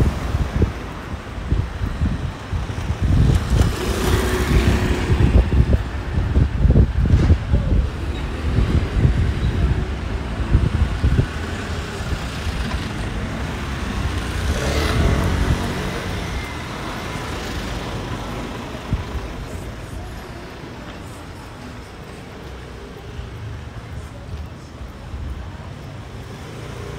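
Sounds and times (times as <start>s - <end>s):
city street traffic: 0.0s - 26.9s
vehicle passing close by: 13.4s - 17.7s.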